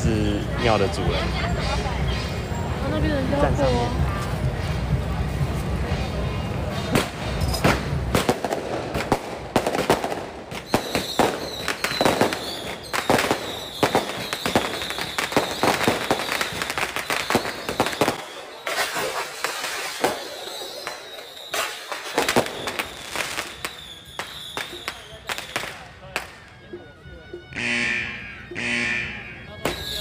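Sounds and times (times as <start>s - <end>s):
firecrackers popping: 6.7s - 26.6s, 29.6s - 30.0s
steady high tone: 26.5s - 30.0s.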